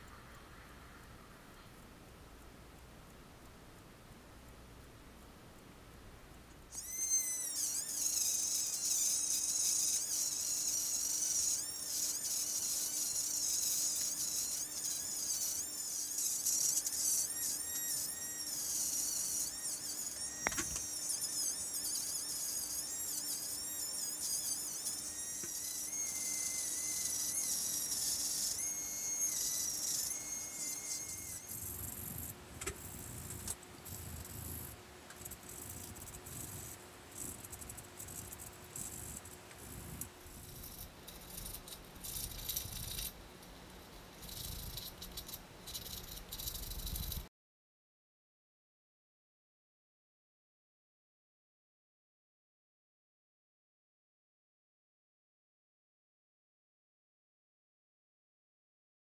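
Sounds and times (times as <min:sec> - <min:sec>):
rotary tool whine grinding resin: 0:06.7 - 0:47.3
sandpaper rasping: 0:06.8 - 0:31.6.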